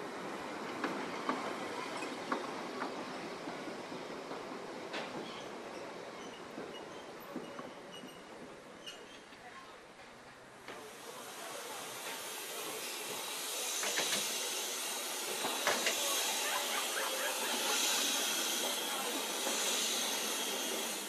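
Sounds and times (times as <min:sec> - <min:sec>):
steam locomotive hissing: 0:10.7 - 0:21.0.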